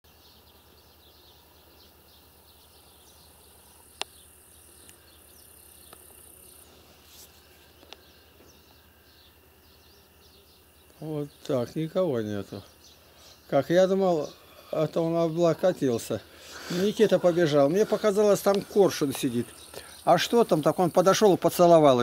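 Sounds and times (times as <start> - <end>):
insects chirping: 0.1 - 22.0
faint ticks: 3.9 - 4.2, 4.8 - 5.1, 5.8 - 6.4.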